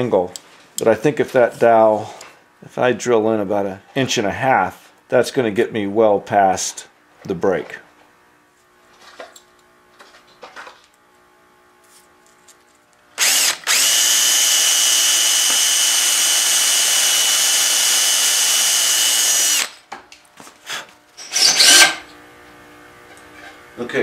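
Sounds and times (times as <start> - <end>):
cordless drill boring into wood: 13.2 - 19.8, 21.2 - 22.1.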